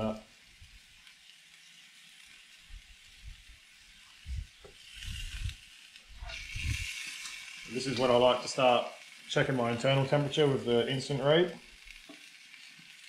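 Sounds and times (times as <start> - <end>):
steak sizzling on grill: 0.0 - 13.0
soft low thumps: 4.2 - 5.6.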